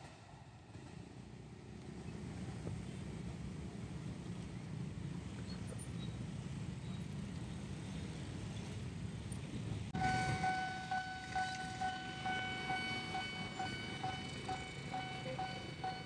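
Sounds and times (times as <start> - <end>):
low traffic rumble: 0.0 - 16.0
level-crossing warning bell: 10.0 - 16.0.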